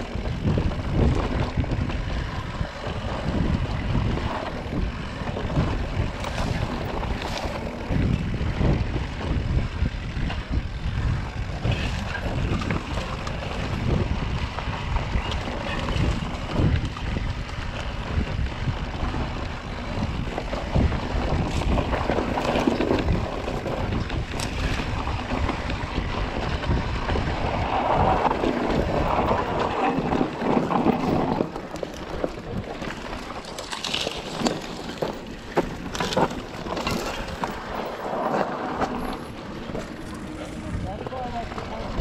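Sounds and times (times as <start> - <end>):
wind buffeting microphone: 0.0 - 42.0
bike knocks and rattles: 11.3 - 42.0.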